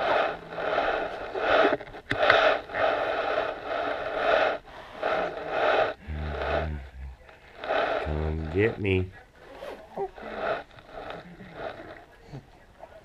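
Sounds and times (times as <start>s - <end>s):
rapid breathy huffs: 0.0s - 8.7s, 9.4s - 12.6s
man's low voice: 6.0s - 7.3s, 8.0s - 9.2s.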